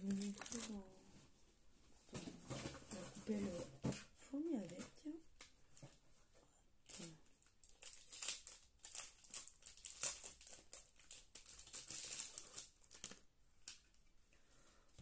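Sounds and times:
plastic packaging crinkling: 0.0s - 0.9s, 6.9s - 13.9s.

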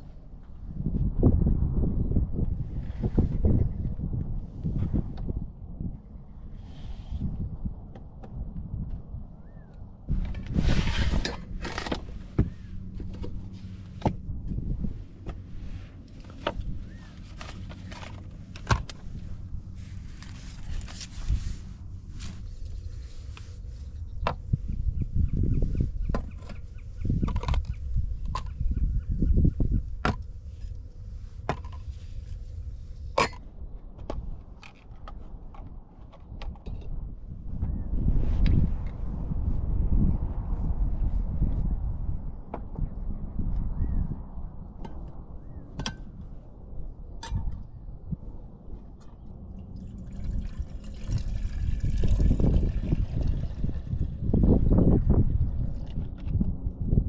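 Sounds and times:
low rumble: 0.0s - 57.0s
wooden drawer sliding scrape: 10.4s - 12.3s.

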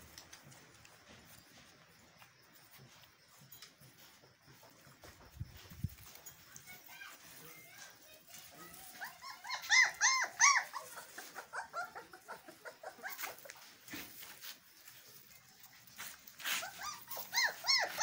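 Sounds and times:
puppies yelping and whimpering: 8.7s - 13.8s, 16.3s - 18.0s.

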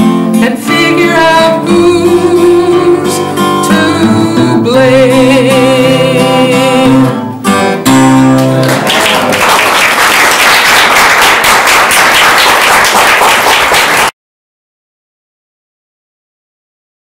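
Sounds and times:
acoustic guitar chords: 0.0s - 9.5s
person singing: 0.3s - 7.9s
applause: 8.3s - 14.2s.

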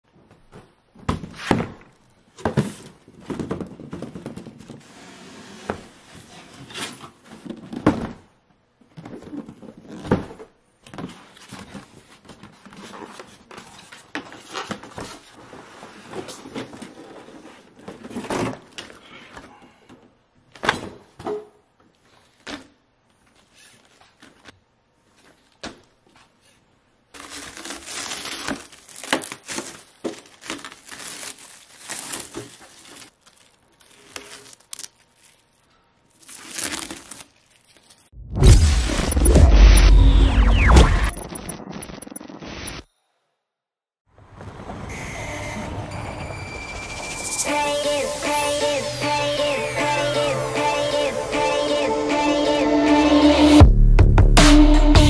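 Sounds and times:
plastic wrap crinkling: 27.2s - 38.1s.

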